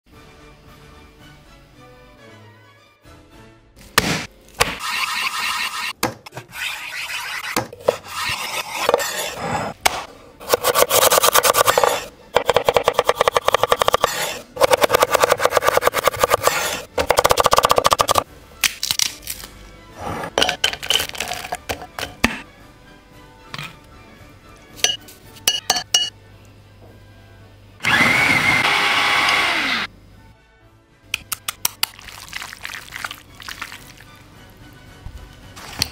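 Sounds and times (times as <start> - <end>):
knife chopping on wooden board: 9.8 - 18.2.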